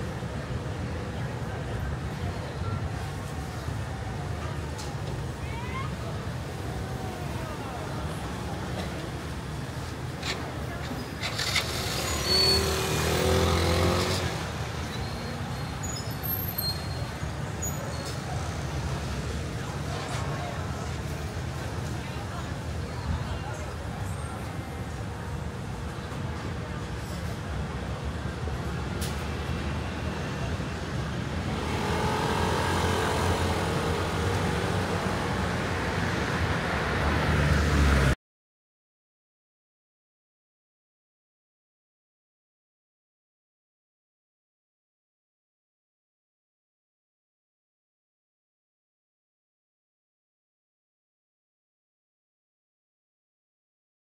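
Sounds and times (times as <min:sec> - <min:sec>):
street traffic rumble: 0:00.0 - 0:38.2.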